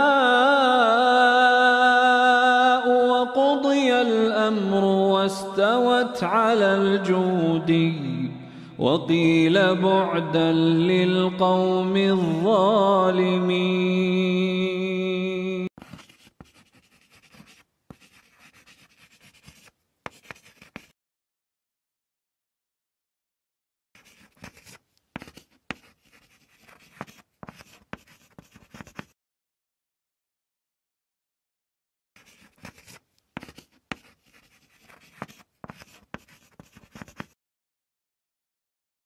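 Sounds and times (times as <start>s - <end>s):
marker pen scratching: 15.8s - 21.0s, 24.0s - 29.2s, 32.2s - 37.4s.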